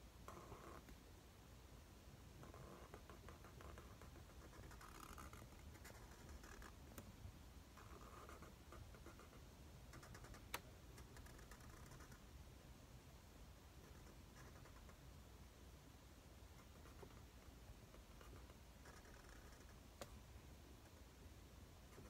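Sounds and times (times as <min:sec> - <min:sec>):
marker scratching on paper: 0:00.3 - 0:00.8, 0:02.4 - 0:06.8, 0:07.8 - 0:12.2, 0:13.8 - 0:15.0, 0:16.6 - 0:17.3, 0:17.9 - 0:19.8.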